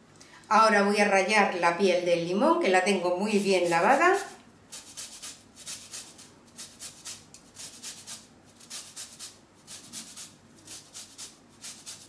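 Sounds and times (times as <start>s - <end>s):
lemon rind scraped on grater: 3.2s - 12.0s.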